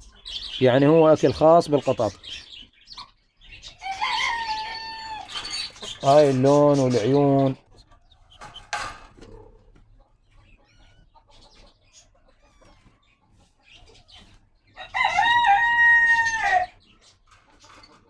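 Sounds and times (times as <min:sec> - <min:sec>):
rooster crowing: 0:03.8 - 0:05.3, 0:14.8 - 0:16.8.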